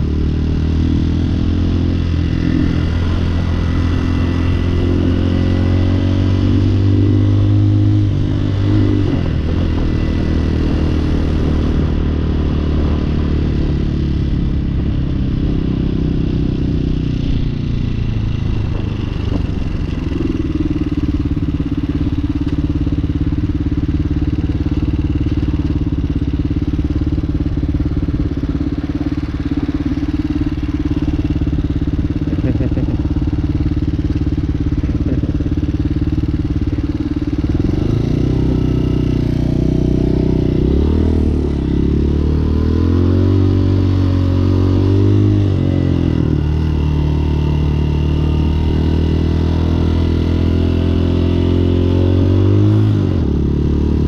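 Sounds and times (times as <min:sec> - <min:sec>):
motorcycle revving and pulling away: 0:00.0 - 0:54.0
motorcycle engine idling: 0:16.4 - 0:42.4.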